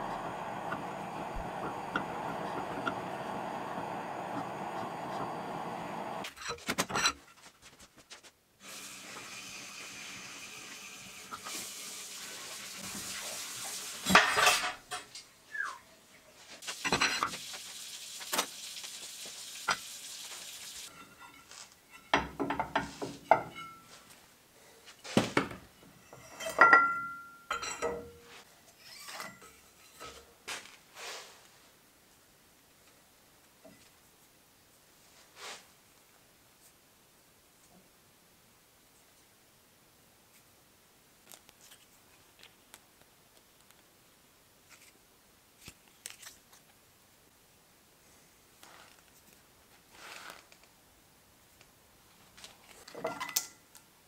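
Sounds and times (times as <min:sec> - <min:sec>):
butane torch hissing: 0:00.0 - 0:06.3, 0:08.6 - 0:14.1, 0:16.6 - 0:20.9.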